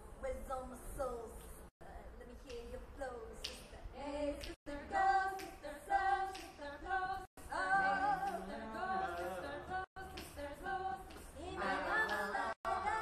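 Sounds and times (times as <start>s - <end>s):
girls singing in harmony: 3.8s - 13.0s.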